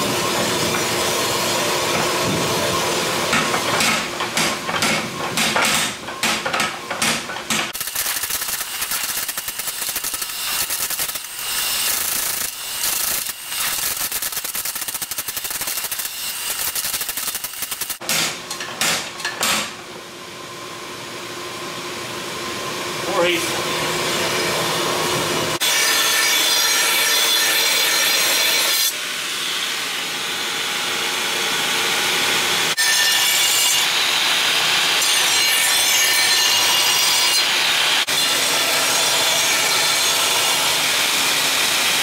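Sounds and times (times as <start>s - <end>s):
power hammer pounding steel: 3.3s - 19.8s.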